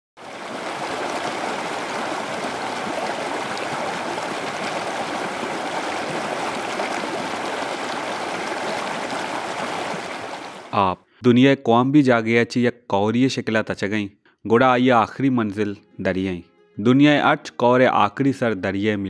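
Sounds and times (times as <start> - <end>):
floodwater rushing: 0.2 - 10.7.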